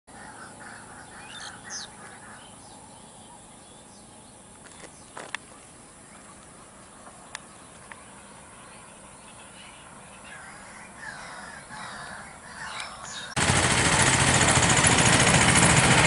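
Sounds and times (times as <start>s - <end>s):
birds chirping and calling: 0.1s - 13.4s
open-air background hiss: 0.1s - 13.4s.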